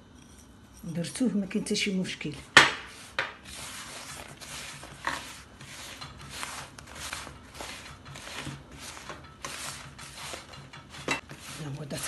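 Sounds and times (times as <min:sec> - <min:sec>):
hand kneading crumbs in a bowl: 0:02.3 - 0:12.0.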